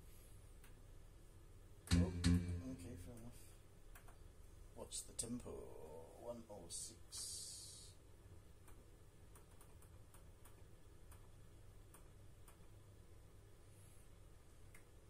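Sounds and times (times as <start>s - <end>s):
low steady hum: 1.0s - 8.4s
faint metronome ticks: 1.9s - 3.3s.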